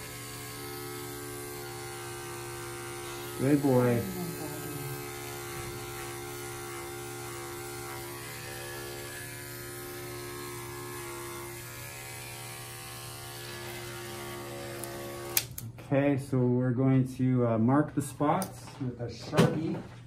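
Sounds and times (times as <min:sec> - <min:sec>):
electric hair clippers humming: 0:00.0 - 0:15.6.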